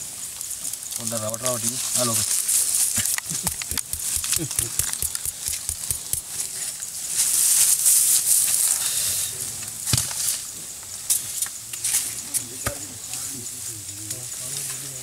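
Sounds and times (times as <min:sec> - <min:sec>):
high hiss: 0:00.0 - 0:15.0
people talking quietly: 0:00.9 - 0:06.6, 0:08.6 - 0:15.0
sharp clicks: 0:03.0 - 0:06.3.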